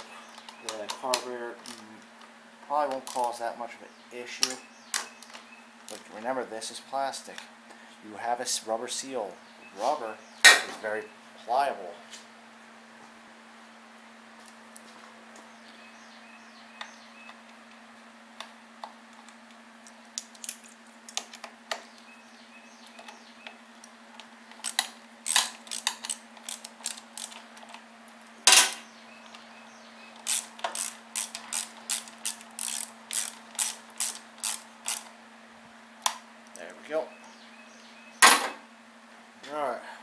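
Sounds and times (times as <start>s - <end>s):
ratchet wrench clicking: 24.6s - 27.4s, 30.2s - 35.1s.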